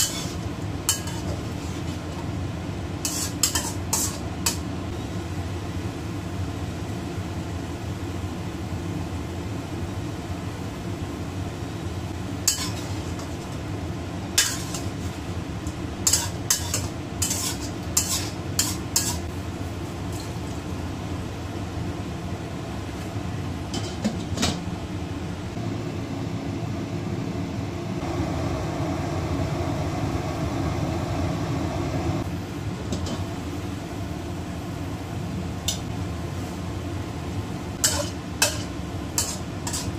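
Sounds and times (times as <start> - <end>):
metal spatula scraping a wok: 0.0 - 2.2, 3.0 - 4.6, 12.4 - 13.6, 14.4 - 19.3, 20.0 - 20.6, 37.8 - 39.9
steady low hum: 0.0 - 39.9.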